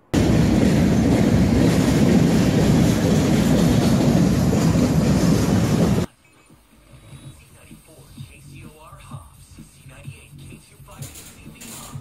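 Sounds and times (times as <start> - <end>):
freight train rumble: 0.0 - 6.1.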